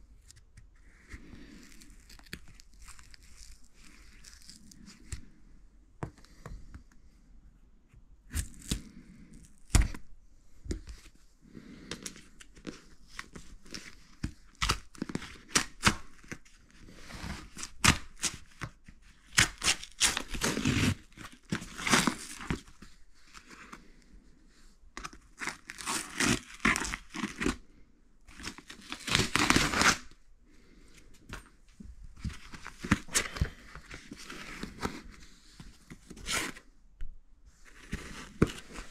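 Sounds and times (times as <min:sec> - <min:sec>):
packing tape and cardboard tearing: 0:11.9 - 0:16.4, 0:17.1 - 0:22.8, 0:25.0 - 0:27.6, 0:28.3 - 0:30.2, 0:35.9 - 0:36.6.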